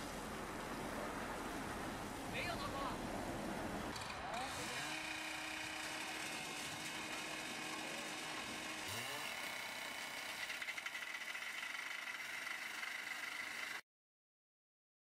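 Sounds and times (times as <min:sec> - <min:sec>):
engine running: 0:03.3 - 0:13.8.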